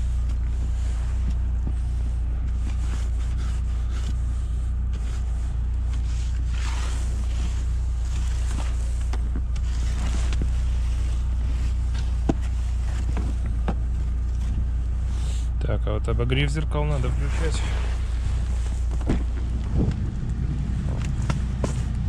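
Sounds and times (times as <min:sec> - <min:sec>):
brush sweeping snow: 0:00.0 - 0:09.0, 0:17.0 - 0:19.0
car engine idling: 0:00.0 - 0:22.0
ice scraper scraping window: 0:06.0 - 0:09.0.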